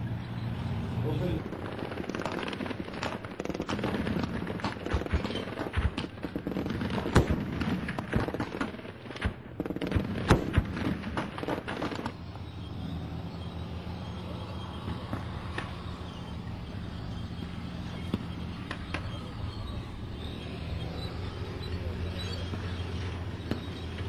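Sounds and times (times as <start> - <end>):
gunshots: 1.1 - 12.2.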